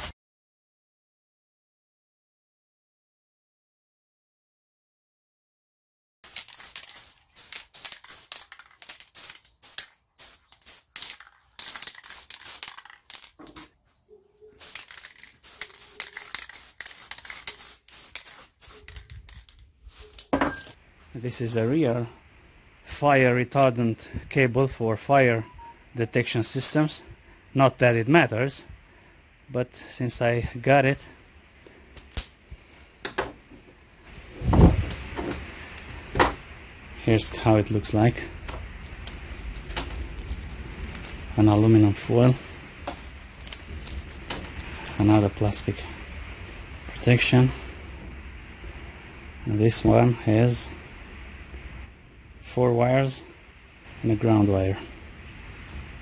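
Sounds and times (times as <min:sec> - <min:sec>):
spray paint can hissing: 0:06.2 - 0:13.4, 0:14.6 - 0:20.3.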